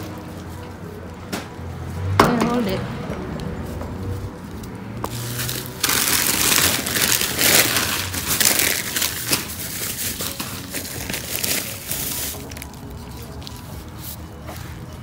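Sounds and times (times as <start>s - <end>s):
plastic bags crinkling: 5.1s - 14.2s.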